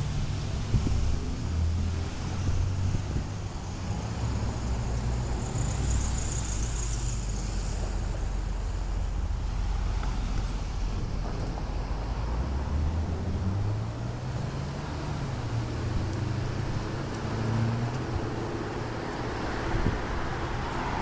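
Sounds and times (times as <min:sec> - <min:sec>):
traffic passing: 0:00.0 - 0:21.0
wind buffeting microphone: 0:00.2 - 0:04.6, 0:15.3 - 0:21.0.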